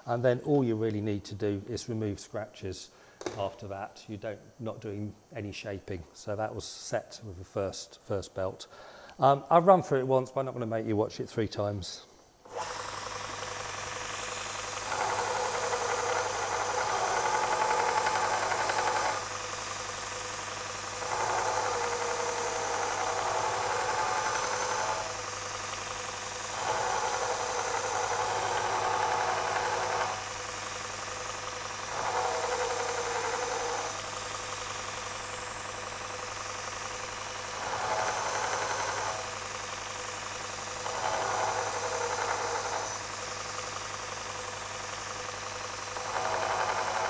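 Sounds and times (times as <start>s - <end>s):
belt grinder motor hum: 12.5s - 47.0s.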